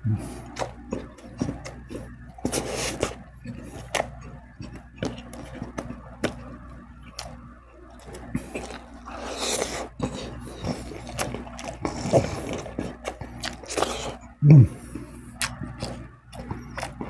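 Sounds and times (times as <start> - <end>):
chewing and mouth clicks: 0.3 - 17.0.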